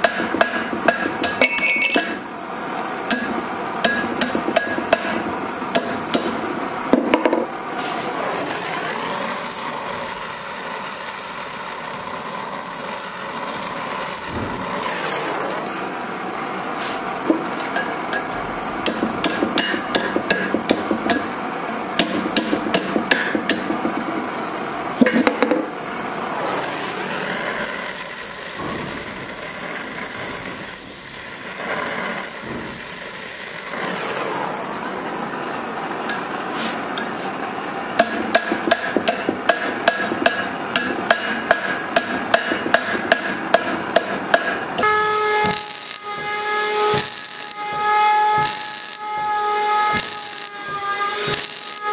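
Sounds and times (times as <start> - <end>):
hammer tapping hot steel on anvil: 0.0 - 2.2, 3.1 - 7.5, 17.3 - 21.4, 22.0 - 24.2, 38.0 - 46.3, 46.9 - 51.9
steady hiss: 7.5 - 25.0, 25.7 - 46.2.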